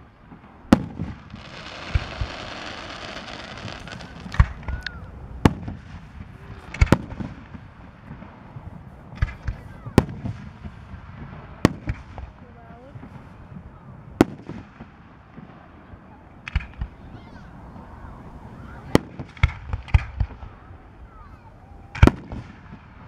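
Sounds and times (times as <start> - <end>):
firework bangs: 0.0 - 23.0
firework hiss: 0.8 - 12.3.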